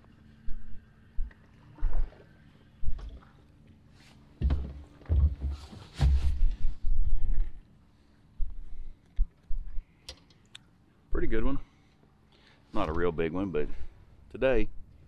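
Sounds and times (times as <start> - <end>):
sharp knocks in boat: 4.4 - 6.5.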